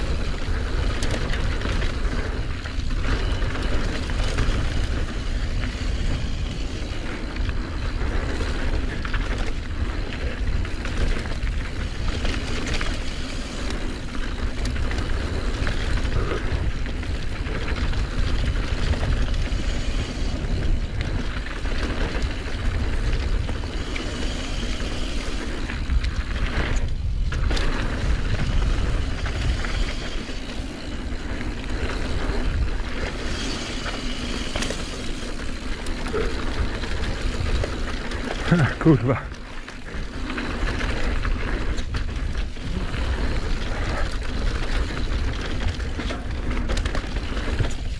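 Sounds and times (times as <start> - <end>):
mountain bike rattling on dirt trail: 0.0 - 47.9
wind rumbling on microphone: 0.0 - 47.9.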